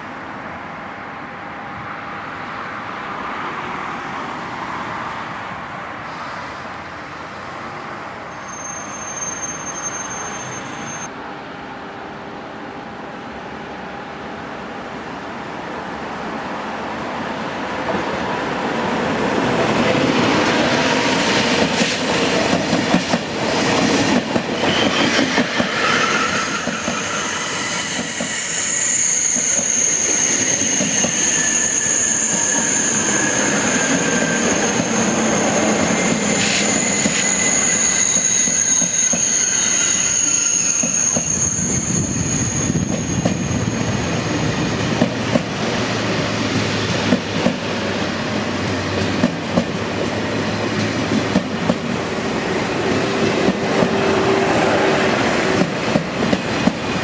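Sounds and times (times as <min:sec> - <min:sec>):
high-speed train passing: 0:00.0 - 0:57.0
high-pitched wheel squeal: 0:08.3 - 0:11.1, 0:24.6 - 0:44.8.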